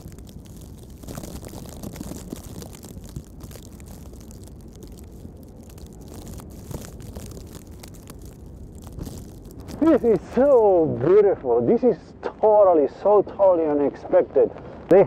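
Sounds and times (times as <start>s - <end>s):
small ticks: 0.0s - 10.2s
blizzard wind on microphone: 0.0s - 11.7s.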